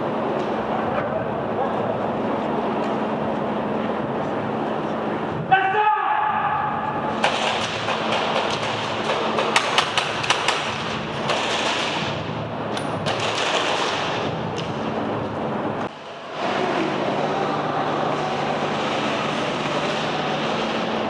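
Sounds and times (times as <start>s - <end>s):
airsoft guns firing: 13.0s - 14.2s.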